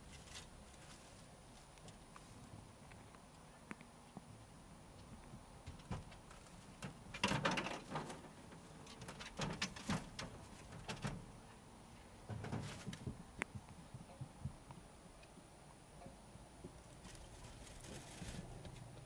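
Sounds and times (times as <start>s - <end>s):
dry hay rustling and crackling: 0.0s - 2.6s, 16.8s - 18.8s.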